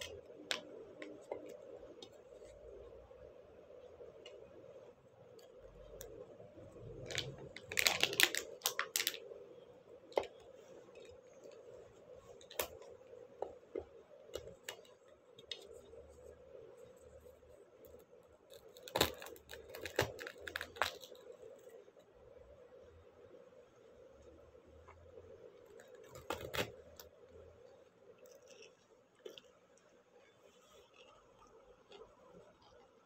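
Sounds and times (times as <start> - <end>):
faint room hum: 0.0 - 33.0
plastic packaging crinkling: 7.0 - 9.4, 10.0 - 12.9, 18.5 - 21.4, 25.7 - 27.0.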